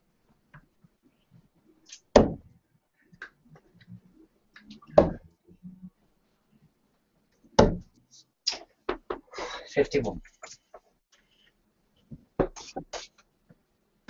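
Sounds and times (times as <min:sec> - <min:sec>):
darts thudding into dartboard: 0:02.1 - 0:02.5, 0:05.0 - 0:05.2, 0:07.6 - 0:07.9.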